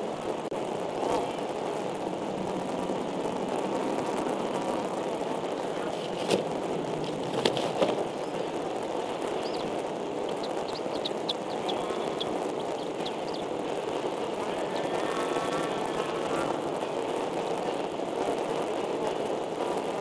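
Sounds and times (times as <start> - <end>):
steady outdoor hiss: 0.0 - 20.0
high bird chirps: 7.9 - 16.5.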